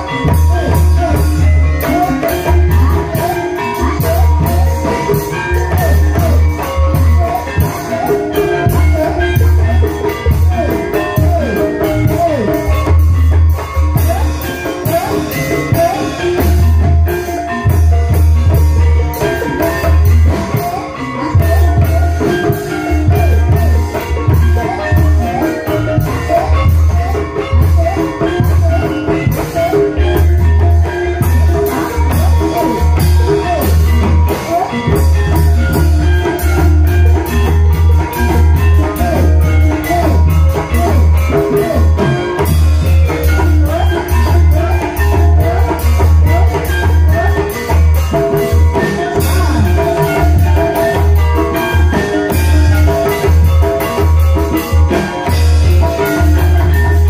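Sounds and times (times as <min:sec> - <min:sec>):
drums: 0:00.0 - 0:57.0
struck tuned percussion: 0:00.0 - 0:57.0.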